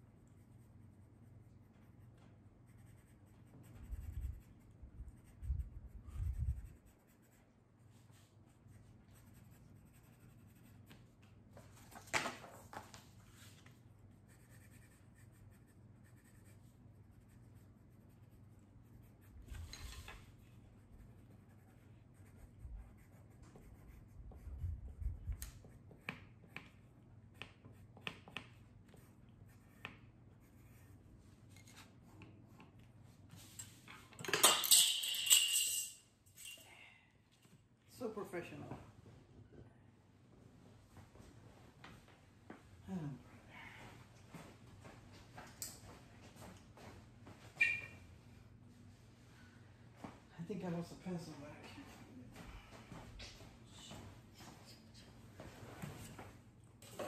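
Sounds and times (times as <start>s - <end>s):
pencils scratching on paper: 0.2s - 11.0s, 13.3s - 32.8s.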